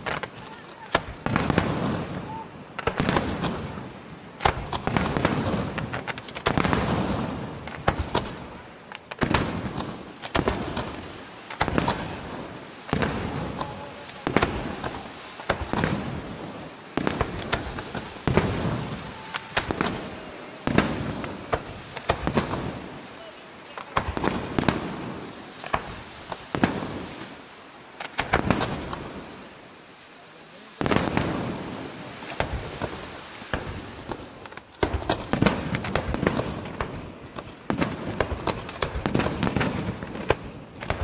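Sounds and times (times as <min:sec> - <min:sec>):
firework shells bursting: 0:04.4 - 0:29.3.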